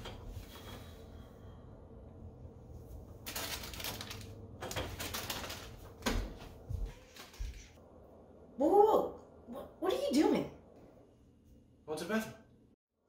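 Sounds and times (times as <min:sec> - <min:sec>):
plastic snack bag crinkling: 0:03.2 - 0:06.0.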